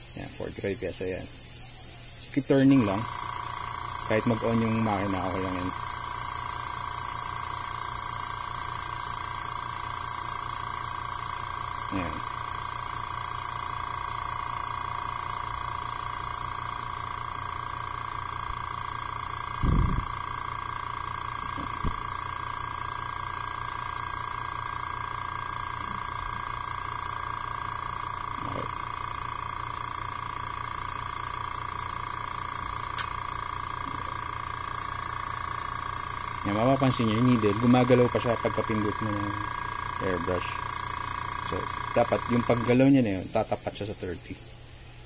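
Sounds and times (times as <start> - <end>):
compressed air hissing: 0.0 - 44.6
air compressor humming: 0.0 - 45.0
airbrush trigger click: 21.2 - 25.0.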